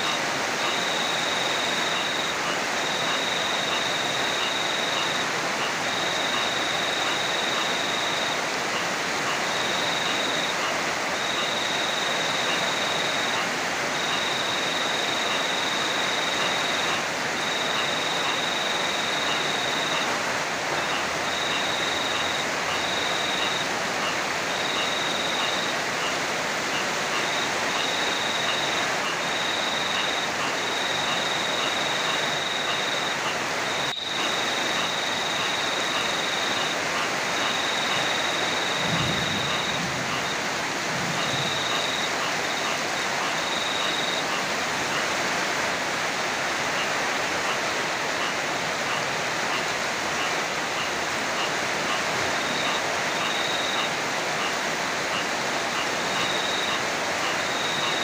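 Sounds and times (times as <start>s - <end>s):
heavy rain pouring: 0.0s - 58.0s
distant thunder rumble: 38.8s - 41.6s.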